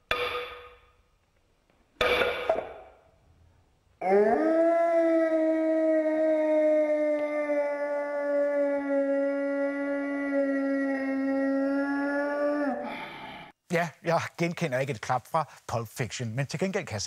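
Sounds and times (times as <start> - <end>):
long howl: 4.0 - 13.5.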